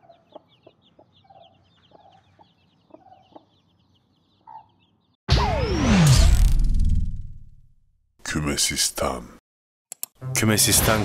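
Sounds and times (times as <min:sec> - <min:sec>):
hen clucking softly: 0:00.0 - 0:03.6
chicks peeping: 0:00.0 - 0:05.2.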